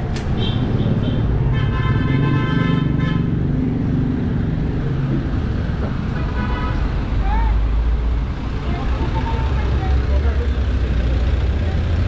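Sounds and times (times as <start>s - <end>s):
street traffic rumble: 0.0s - 12.0s
vehicle horn: 0.4s - 3.3s.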